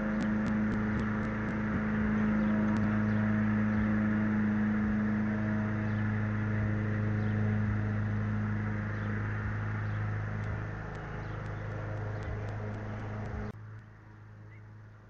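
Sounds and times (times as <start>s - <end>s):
low mechanical hum: 0.0s - 15.0s
faint ticks: 10.4s - 13.9s.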